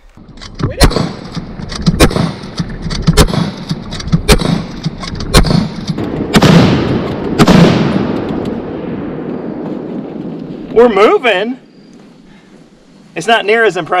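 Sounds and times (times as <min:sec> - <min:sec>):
rifle shots with echo: 0:00.8 - 0:10.7.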